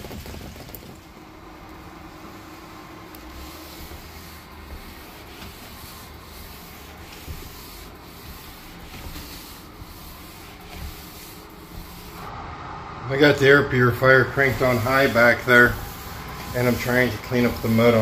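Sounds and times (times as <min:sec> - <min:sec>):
air purifier hiss: 0:00.0 - 0:18.0
mop pad rubbing on hard floor: 0:02.1 - 0:12.3, 0:14.0 - 0:18.0.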